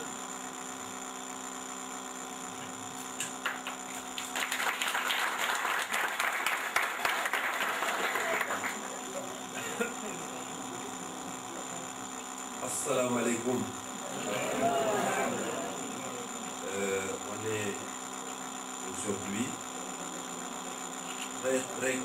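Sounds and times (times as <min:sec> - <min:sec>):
electrical mains hum: 0:00.0 - 0:22.0
audience applauding: 0:03.4 - 0:09.2.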